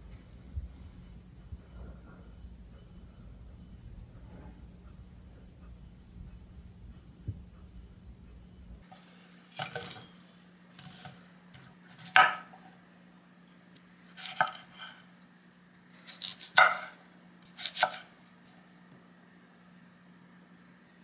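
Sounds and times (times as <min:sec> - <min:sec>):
knife cutting cucumbers: 0:16.1 - 0:18.1.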